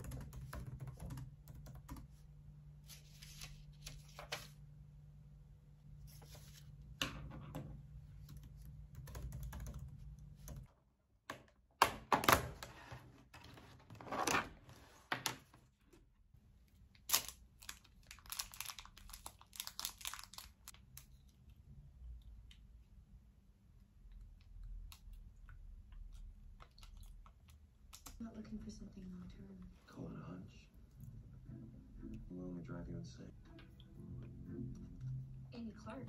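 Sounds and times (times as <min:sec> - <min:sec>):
paper rustling: 0:02.8 - 0:04.6
packaging rustling: 0:17.0 - 0:21.1.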